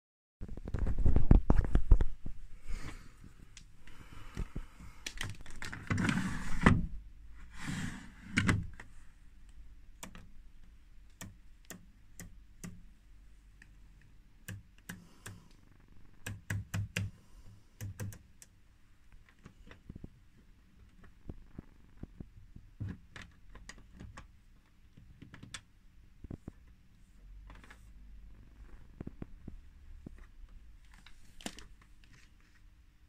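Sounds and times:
sharp clicks: 9.5 - 10.3, 11.1 - 12.8, 16.2 - 17.2, 17.8 - 18.5.

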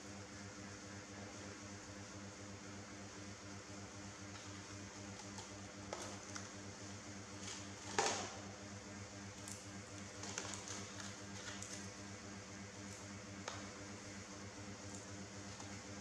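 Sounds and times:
steady low hum: 0.0 - 16.0
popcorn and plastic clicking: 5.1 - 6.6, 9.4 - 11.9.

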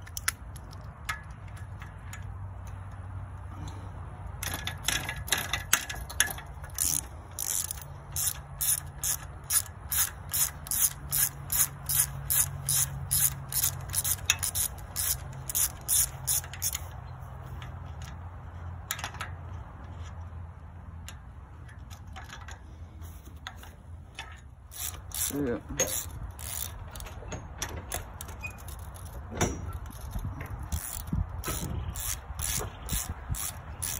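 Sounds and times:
ratchet wrench clicking: 0.0 - 2.9, 4.3 - 17.0, 23.5 - 33.9.

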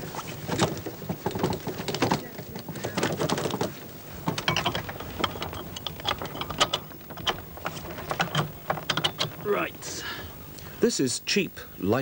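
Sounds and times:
metal fittings clicking and rattling: 4.3 - 9.6.

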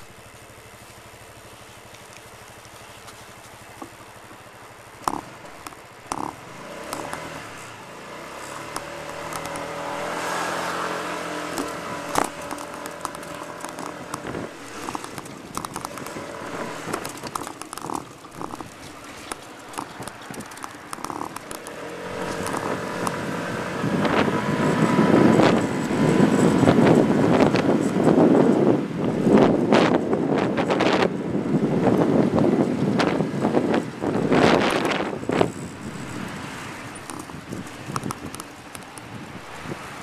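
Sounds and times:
car engine running: 0.0 - 40.0
sharp clicks and knocks: 5.0 - 7.7, 8.5 - 10.3, 11.4 - 23.3, 34.7 - 39.8.

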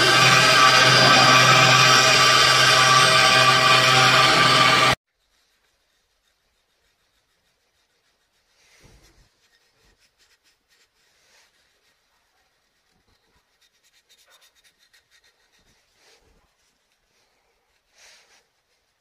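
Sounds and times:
sandpaper rubbing: 5.2 - 19.0.

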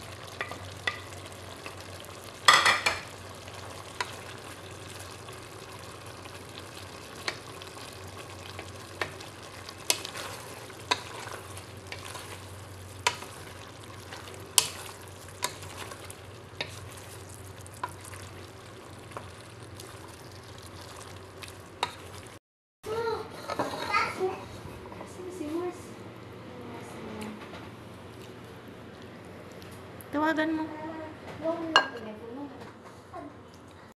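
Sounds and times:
meat and onions sizzling: 0.0 - 22.4.

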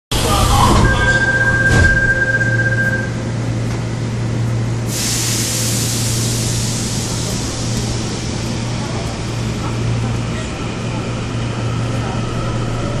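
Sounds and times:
train interior hum: 0.1 - 13.0
loud hiss: 4.9 - 9.6.

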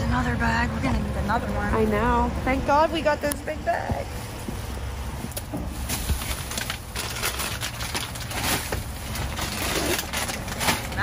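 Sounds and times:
plastic packaging rustling: 5.3 - 11.0.

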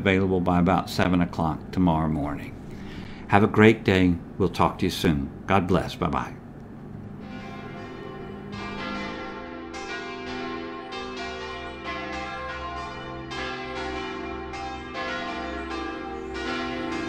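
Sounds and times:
church bells pealing: 7.1 - 17.0.

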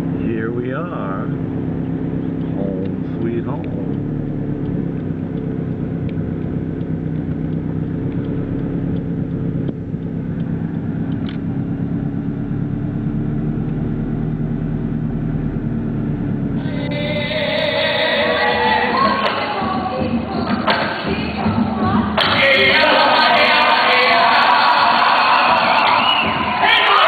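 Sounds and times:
car engine and road noise: 0.0 - 27.0
music with singing: 16.6 - 27.0.

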